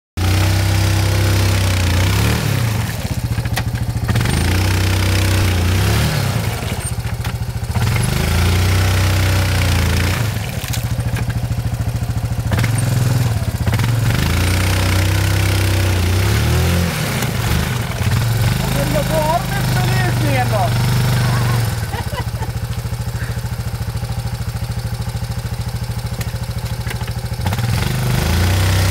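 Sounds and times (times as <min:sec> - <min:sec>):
atv engine revving: 0:00.2 - 0:28.9
wheels churning in mud: 0:00.2 - 0:28.9.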